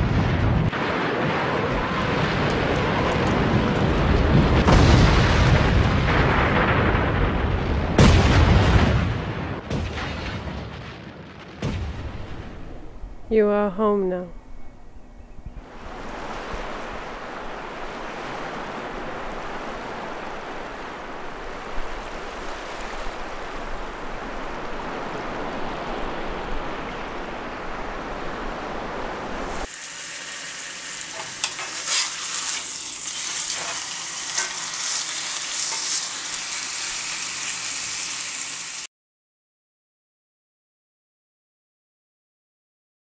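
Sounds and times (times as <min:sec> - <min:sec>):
steak sizzling in a frying pan: 0:29.6 - 0:38.9.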